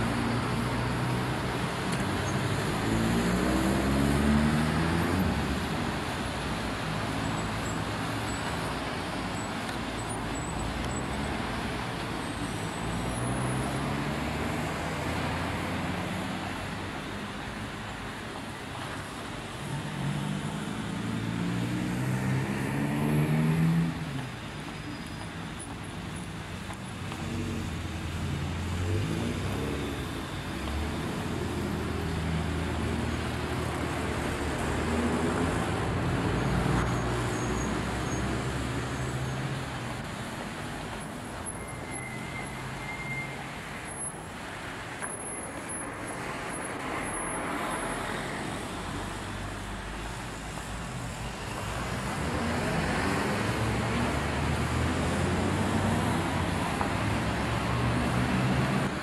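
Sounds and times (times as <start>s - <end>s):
road noise: 0.0s - 59.0s.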